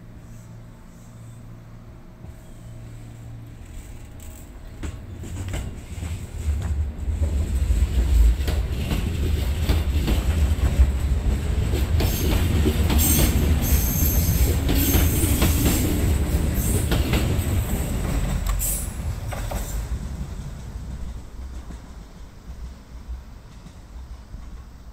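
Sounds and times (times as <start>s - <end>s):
train wheels rumbling on rail: 0.0s - 24.9s
clacks over rail joints: 3.5s - 22.8s.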